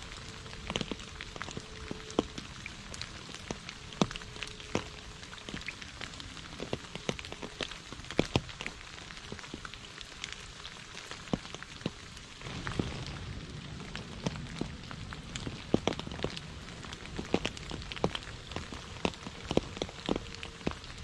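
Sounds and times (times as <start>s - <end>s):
rain falling on a puddle: 0.0s - 21.0s
low rumble: 12.4s - 21.0s.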